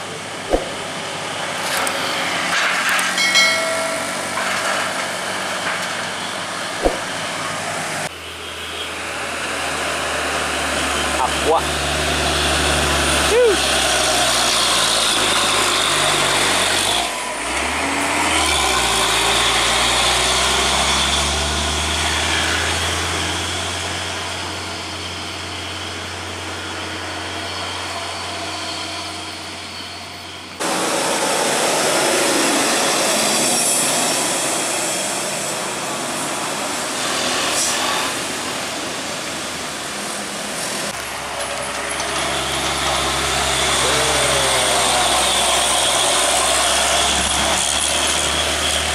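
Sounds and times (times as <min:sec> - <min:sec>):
diesel truck engines climbing: 0:00.0 - 0:48.9.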